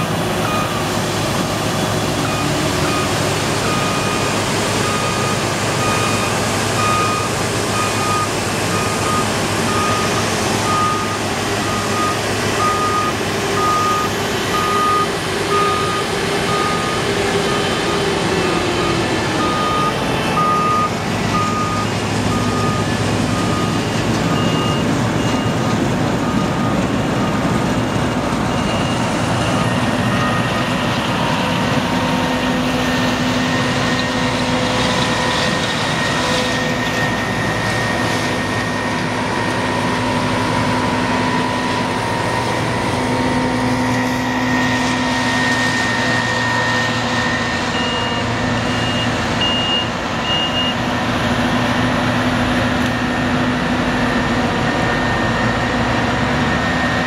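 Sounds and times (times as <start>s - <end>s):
heavy diesel drone: 0.0s - 57.0s
warning beeps: 45.3s - 50.8s.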